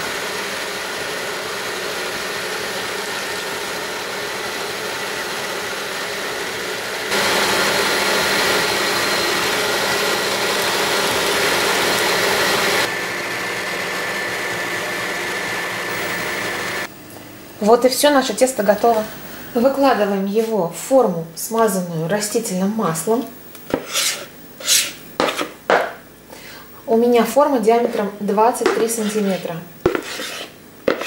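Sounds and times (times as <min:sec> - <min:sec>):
electric stand mixer whisking: 0:00.0 - 0:16.9.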